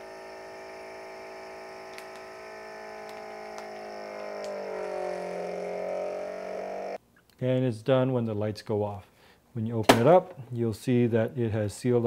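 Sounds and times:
vacuum sealer pump humming: 0.0s - 7.0s.

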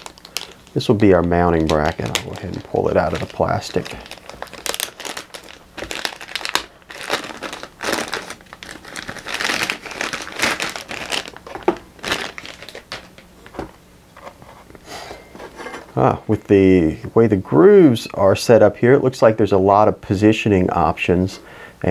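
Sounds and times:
plastic bag crinkling: 0.0s - 13.7s.

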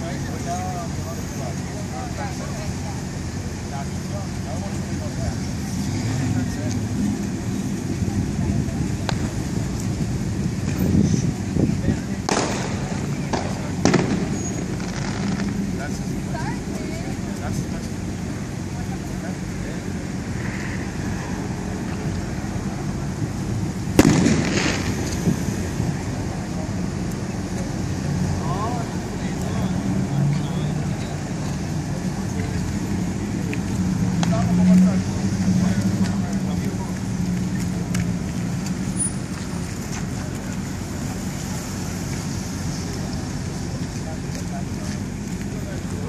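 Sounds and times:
car engines idling and moving: 0.0s - 46.0s
street traffic noise: 0.0s - 46.0s
sharp bang with rumble: 12.3s - 15.6s, 24.0s - 25.3s.

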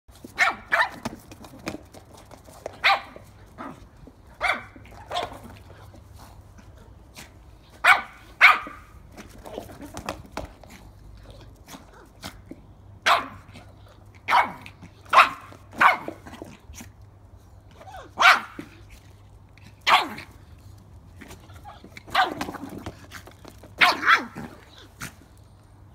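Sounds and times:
puppy yapping: 17.8s - 18.7s.

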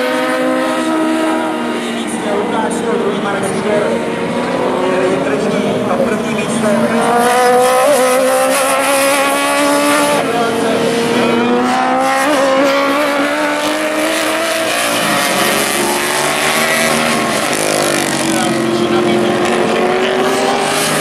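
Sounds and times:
racing motorcycle engines revving: 0.0s - 21.0s.

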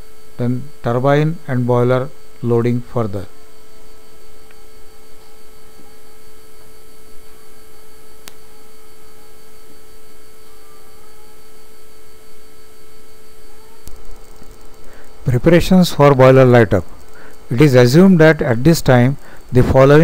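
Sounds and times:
steady electrical hum: 0.0s - 20.0s
single click: 8.2s - 8.4s.

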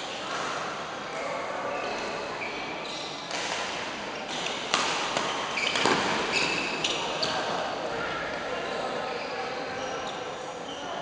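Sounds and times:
shoes squeaking on court: 1.8s - 3.5s, 4.2s - 7.6s, 9.1s - 11.0s
racket hitting shuttlecock: 3.3s - 6.4s.

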